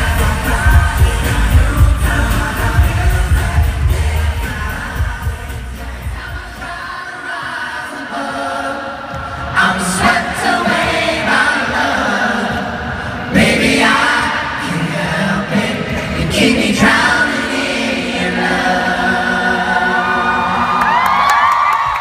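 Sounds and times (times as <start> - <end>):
full band with heavy bass: 0.0 - 6.8
male vocal group singing: 0.0 - 20.6.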